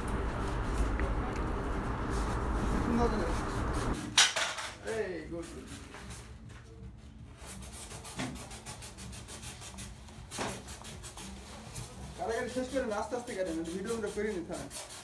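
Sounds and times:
blade scraping foam sheet: 7.4s - 15.0s.

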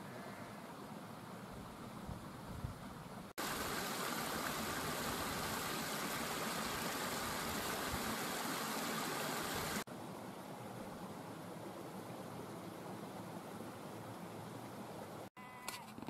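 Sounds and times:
stream running over rocks: 3.4s - 10.2s.

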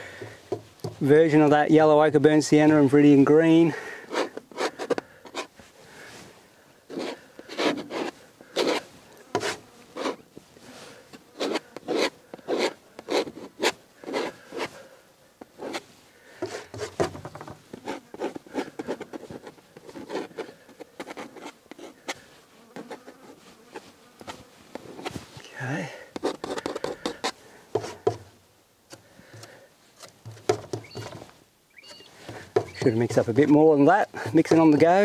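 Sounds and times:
palette knife scraping on canvas: 4.0s - 5.6s, 6.9s - 14.8s, 15.6s - 25.3s, 26.2s - 28.2s, 31.8s - 33.5s.

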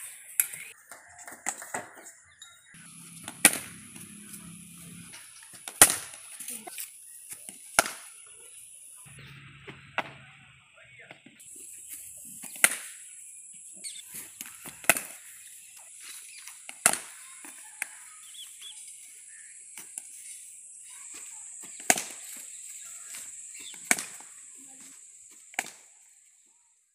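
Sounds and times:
cricket bat hitting ball: 3.3s - 4.1s.

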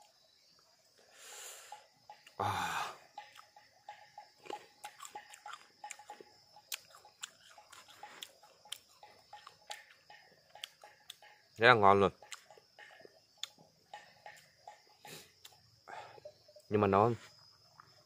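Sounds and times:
breathy vocal sound: 2.4s - 3.1s, 15.1s - 16.3s
person chewing wetly: 4.4s - 10.0s.

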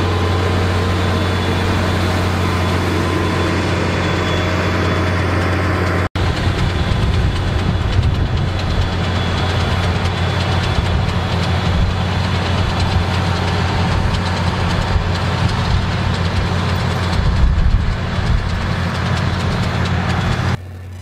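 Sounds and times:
tractor diesel engine running: 0.0s - 21.0s
implements rattling: 6.2s - 21.0s.

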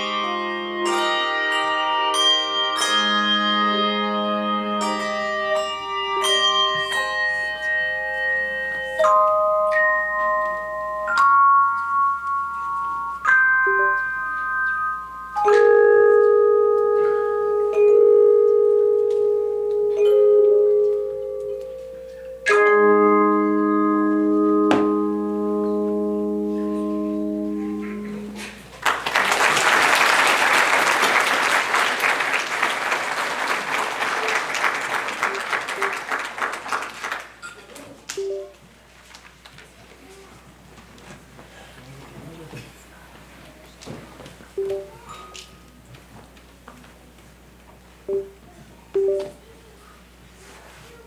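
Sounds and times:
handbell choir ringing chords: 0.0s - 28.4s
audience applause: 28.7s - 37.4s.

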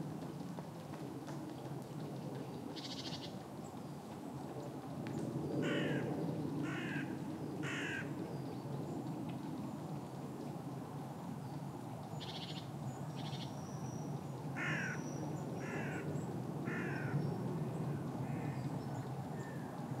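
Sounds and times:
low background noise: 0.0s - 20.0s
crow cawing: 5.6s - 6.0s, 6.6s - 8.1s, 14.6s - 15.0s, 15.6s - 16.1s, 16.7s - 17.2s.

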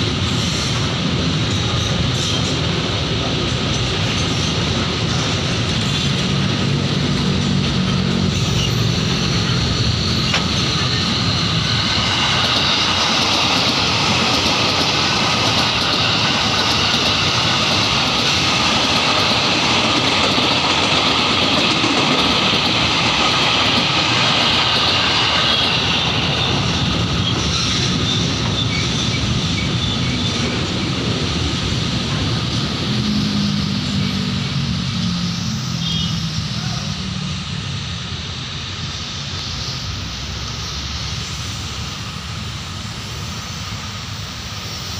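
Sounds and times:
electric train whine: 0.0s - 44.9s
freight wagons rolling on rails: 1.1s - 33.2s.

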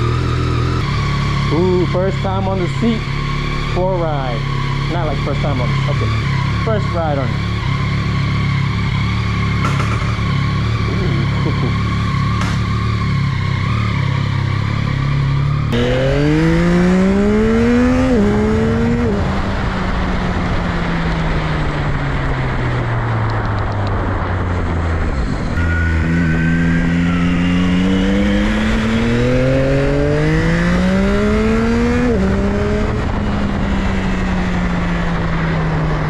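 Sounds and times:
motorcycle engine accelerating: 0.0s - 36.0s
wind rushing over microphone: 16.4s - 27.2s, 30.3s - 36.0s.

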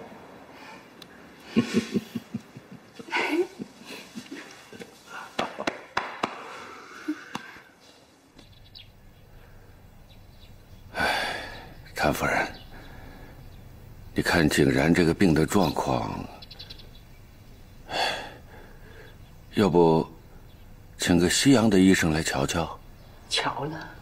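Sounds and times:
person laughing: 1.4s - 6.0s.

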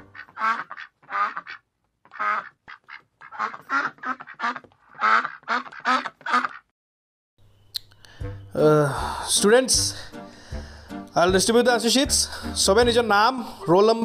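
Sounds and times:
duck quacks: 0.0s - 6.7s.

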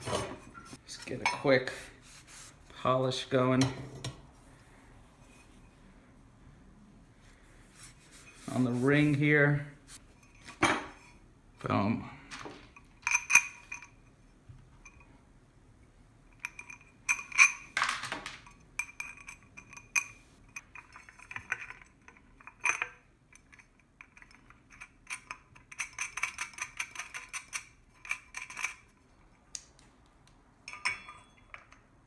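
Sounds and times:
metal clinking and rattling: 16.3s - 29.0s, 30.6s - 32.0s.

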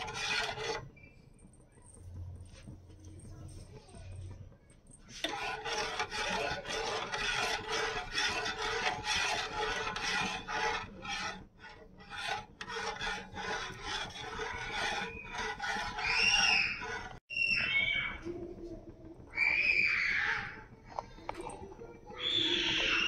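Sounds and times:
metal spoon scraping saucepan: 0.0s - 1.2s, 4.9s - 17.3s.

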